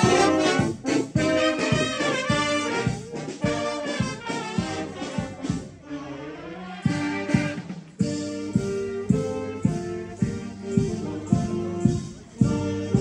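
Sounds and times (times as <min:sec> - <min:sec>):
brass band playing: 0:00.0 - 0:13.0.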